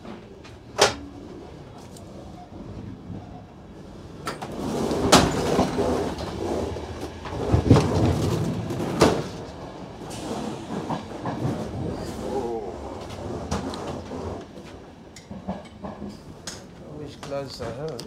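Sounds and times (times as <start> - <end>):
sliding doors rushing: 3.8 - 16.4.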